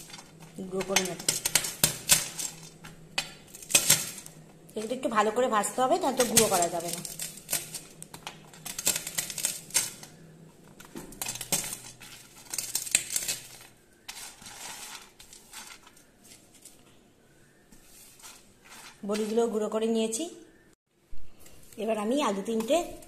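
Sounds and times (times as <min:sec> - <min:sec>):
pieces clicking on metal plate: 0:00.0 - 0:05.0, 0:06.0 - 0:10.2, 0:10.8 - 0:16.0
crisp food crackling: 0:00.0 - 0:16.8.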